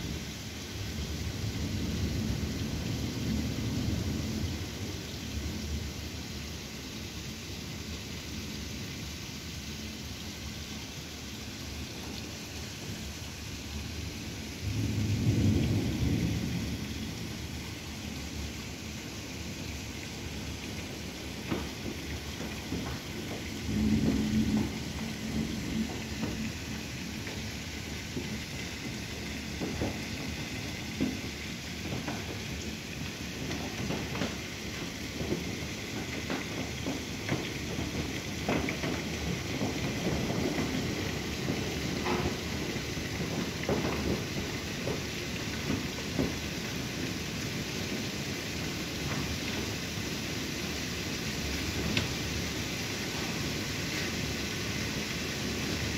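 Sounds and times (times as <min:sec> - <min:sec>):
heavy rain: 0:00.0 - 0:55.9
low thunder rumble: 0:00.8 - 0:06.0, 0:13.8 - 0:48.3.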